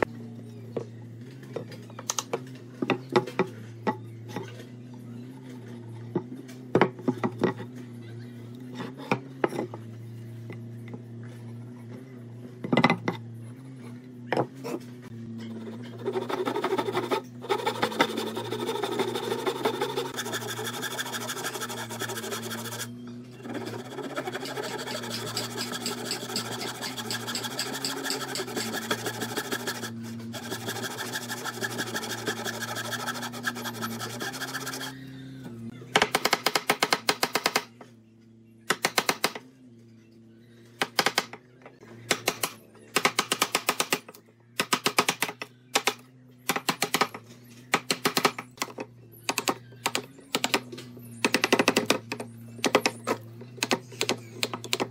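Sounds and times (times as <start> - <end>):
handsaw rasping through wood: 15.5 - 35.0.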